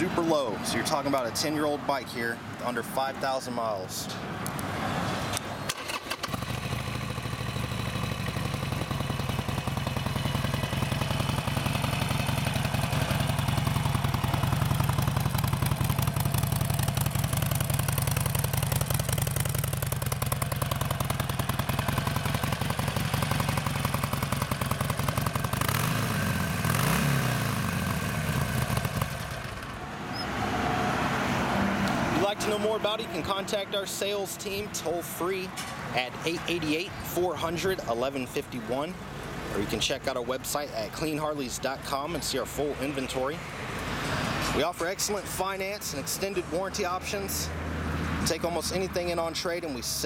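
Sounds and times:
throttle blip revving engine: 0:05.4 - 0:30.3
motorcycle engine idling: 0:06.2 - 0:29.8.

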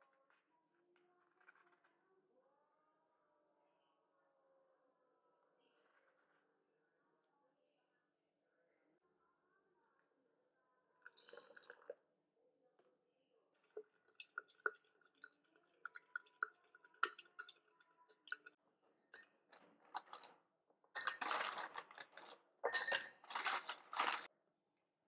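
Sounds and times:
ice cubes clattering into jar: 0:21.0 - 0:24.3
spoon clinking against glass jar: 0:21.0 - 0:24.3.

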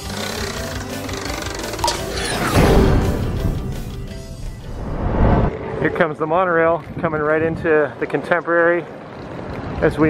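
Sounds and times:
intro theme music: 0:01.3 - 0:06.6.

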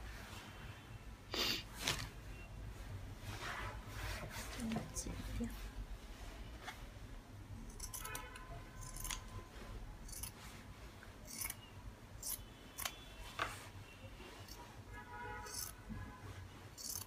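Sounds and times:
scissors snipping fabric: 0:07.7 - 0:08.2, 0:08.8 - 0:09.3, 0:10.0 - 0:10.4, 0:11.3 - 0:11.6, 0:15.5 - 0:15.8, 0:16.8 - 0:17.0.

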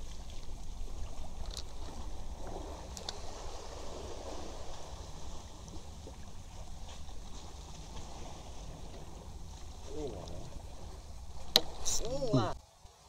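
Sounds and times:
steady low rumble: 0:00.0 - 0:12.6
water lapping against boat hull: 0:00.0 - 0:12.6
faint sharp clicks: 0:02.9 - 0:03.2.

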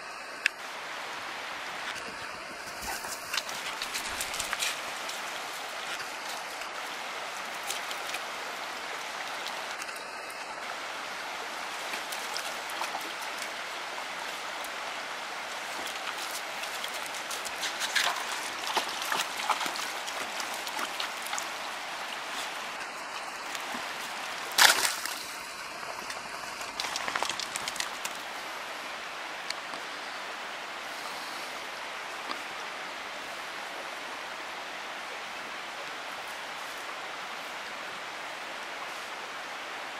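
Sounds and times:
stream babbling: 0:00.0 - 0:39.9
dog splashing through water: 0:15.6 - 0:28.2.

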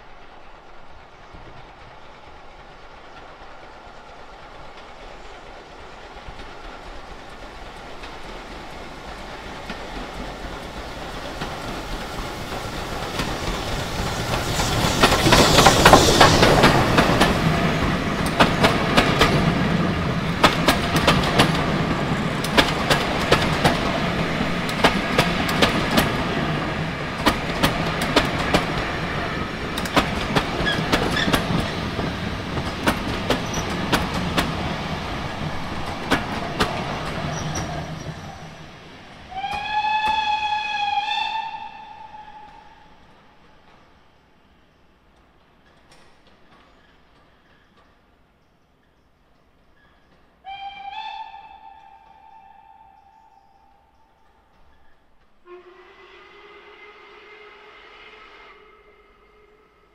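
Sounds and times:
steam train passing: 0:00.0 - 0:59.9.

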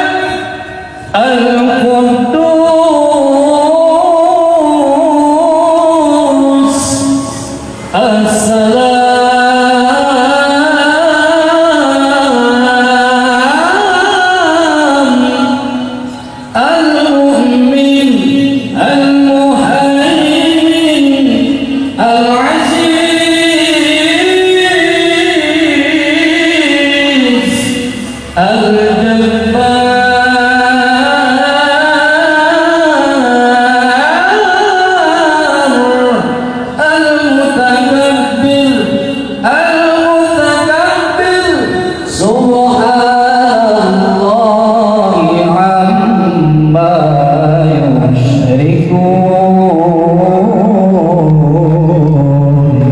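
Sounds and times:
man reciting melodically over loudspeaker: 0:00.0 - 0:52.9.

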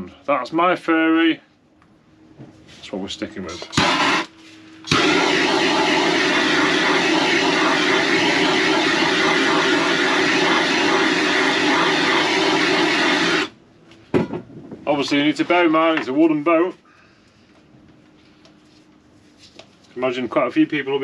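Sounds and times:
blowtorch ignition click: 0:03.6 - 0:13.5
blowtorch flame roaring: 0:03.7 - 0:13.6.

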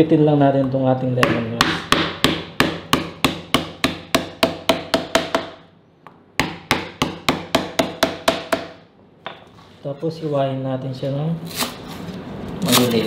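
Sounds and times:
knife pounding on cutting board: 0:01.2 - 0:05.6, 0:06.4 - 0:09.4.

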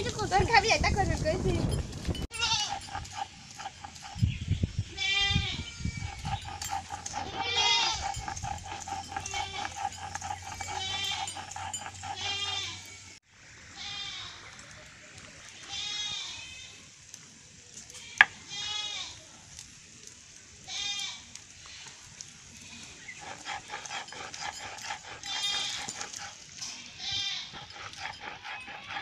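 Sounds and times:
goats bleating: 0:02.3 - 0:04.2, 0:05.0 - 0:13.1, 0:22.6 - 0:29.0.

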